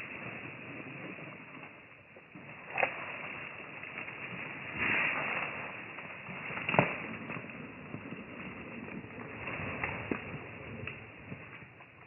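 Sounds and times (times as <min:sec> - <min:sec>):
twigs snapping: 0:06.4 - 0:07.6.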